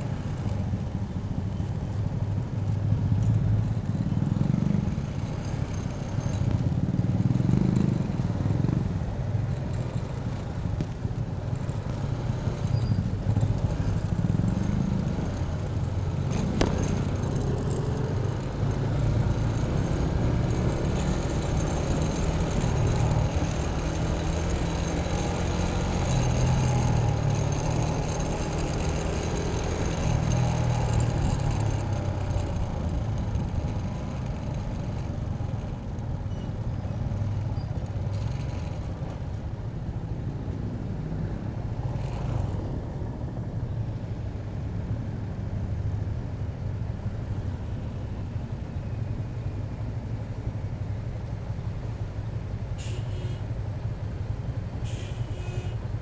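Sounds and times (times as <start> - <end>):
road noise: 0.0 - 56.0
motor scooter engine: 4.1 - 39.6.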